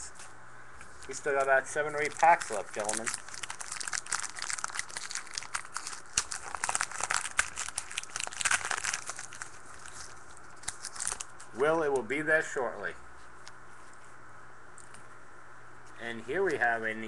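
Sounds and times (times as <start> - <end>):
foil wrapper crinkling: 1.0 - 11.6.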